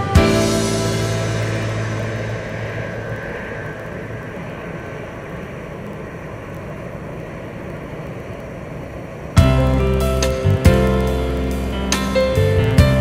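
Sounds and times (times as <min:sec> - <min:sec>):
music: 0:00.0 - 0:04.0, 0:09.4 - 0:13.0
jet engines rumbling: 0:00.0 - 0:13.0.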